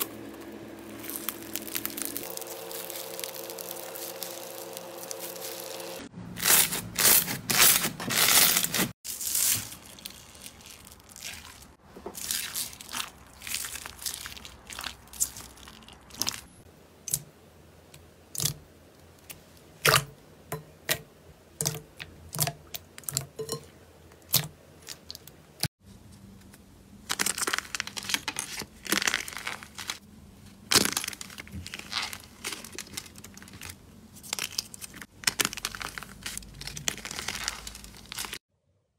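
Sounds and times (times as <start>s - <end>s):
clay crust cracking and crinkling: 0.0s - 17.3s, 26.4s - 38.4s.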